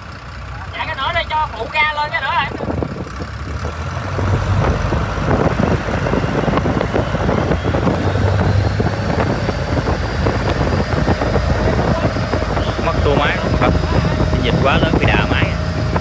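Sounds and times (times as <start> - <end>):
boat engine droning: 0.0 - 16.0
wind on microphone: 2.4 - 16.0
water rushing: 4.2 - 16.0.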